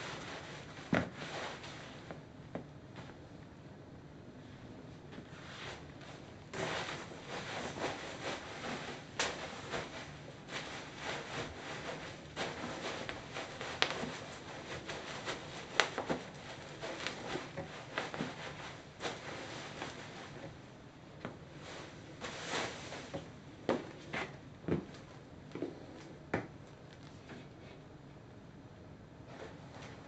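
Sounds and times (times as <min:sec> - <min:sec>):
bubble wrap crinkling underfoot: 0:05.5 - 0:20.5.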